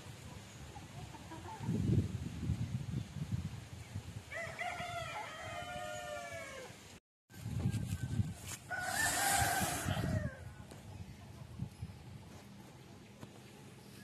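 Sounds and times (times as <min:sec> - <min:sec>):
rooster crowing: 0:04.3 - 0:06.8, 0:08.7 - 0:10.4.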